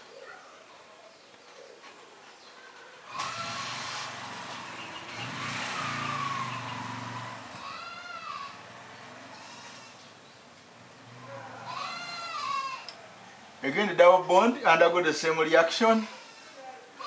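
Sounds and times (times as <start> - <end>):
vehicle engine passing with whine: 3.1 - 13.9.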